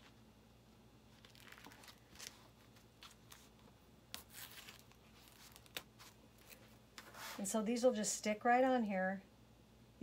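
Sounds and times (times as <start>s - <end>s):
plastic sheets rustling and crinkling: 1.1s - 7.6s.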